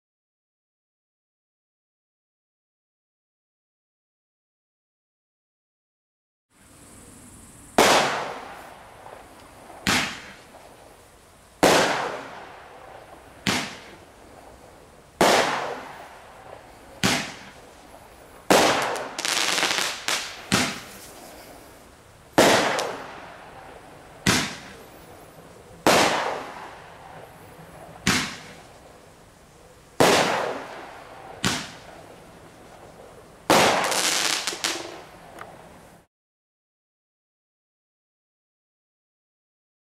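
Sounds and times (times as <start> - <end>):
firework crackling: 6.6 - 36.1
roman candle bangs and pops: 9.8 - 10.4, 13.4 - 13.9, 17.0 - 17.6, 18.5 - 21.1, 24.2 - 24.8, 28.0 - 28.6, 31.4 - 31.8.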